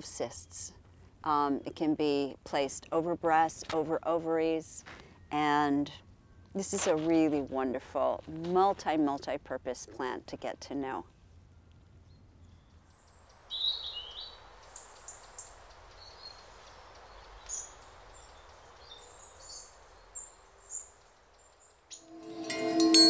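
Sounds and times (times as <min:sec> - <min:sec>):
faint outdoor background noise: 0:00.0 - 0:23.0.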